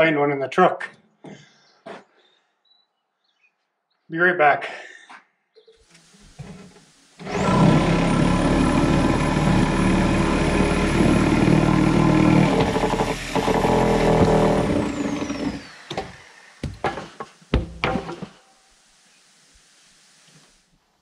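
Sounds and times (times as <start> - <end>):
motor whining: 7.2 - 16.7.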